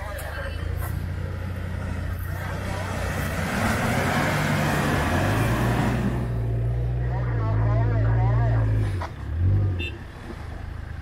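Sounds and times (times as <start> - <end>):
engine revving under load: 0.8 - 10.5.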